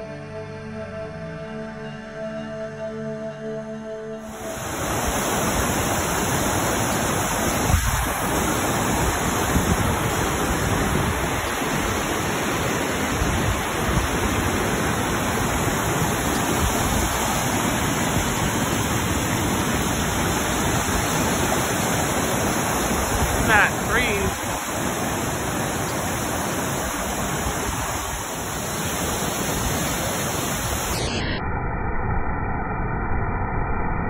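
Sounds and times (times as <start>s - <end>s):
water rushing over rocks: 4.3s - 31.0s.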